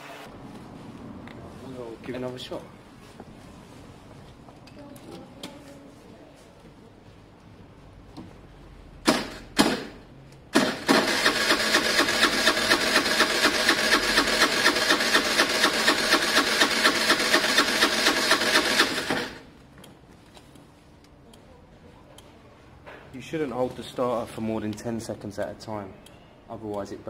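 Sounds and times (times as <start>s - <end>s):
scooter starter cranking: 9.1s - 19.5s.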